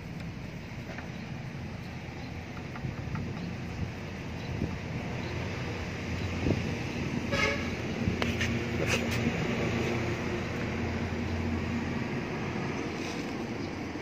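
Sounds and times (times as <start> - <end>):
horn toot: 7.3 - 7.8.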